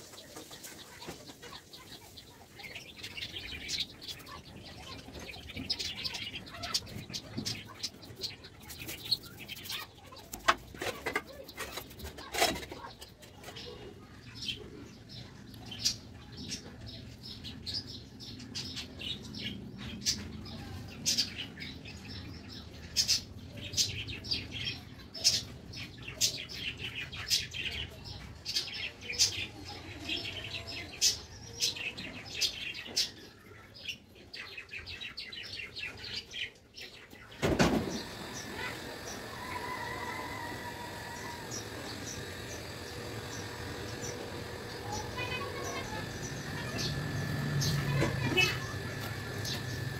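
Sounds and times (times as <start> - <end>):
small birds chirping: 0.0 - 49.9.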